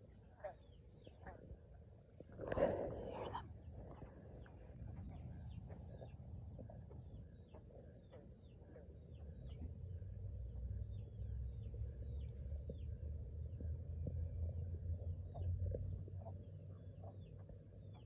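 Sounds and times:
frogs chirping: 0.0s - 18.0s
low rumble: 9.0s - 18.0s.

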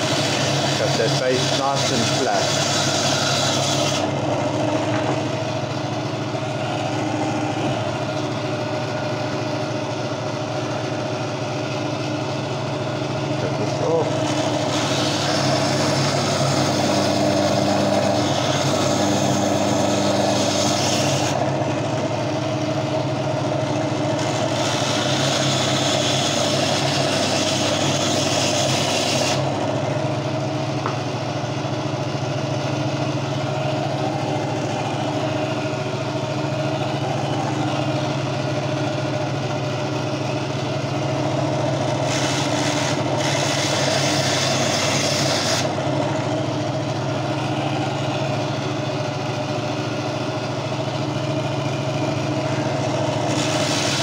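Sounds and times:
saw blade grinding coral: 0.0s - 4.9s, 13.6s - 21.5s, 24.1s - 29.6s, 41.8s - 45.8s, 52.6s - 54.0s
bandsaw motor hum: 0.0s - 54.0s.

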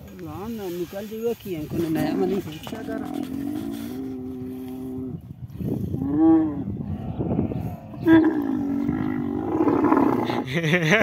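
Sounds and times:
camel moaning and grumbling: 1.7s - 10.5s.

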